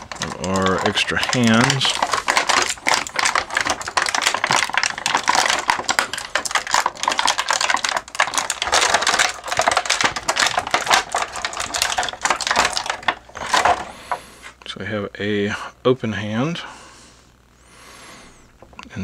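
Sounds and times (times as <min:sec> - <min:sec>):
plastic bag crinkling: 0:00.0 - 0:14.5.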